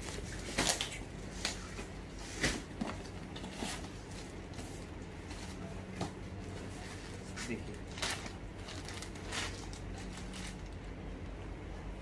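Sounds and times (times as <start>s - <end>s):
steady low hum: 0.0s - 12.0s
plastic packaging crinkling: 7.7s - 11.0s.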